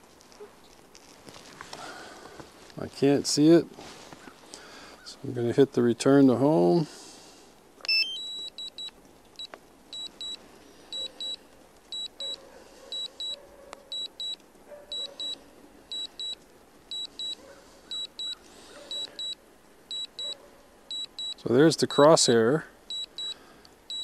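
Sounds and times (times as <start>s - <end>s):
remote controller beeping: 7.9s - 12.4s, 13.0s - 21.4s, 22.9s - 24.0s.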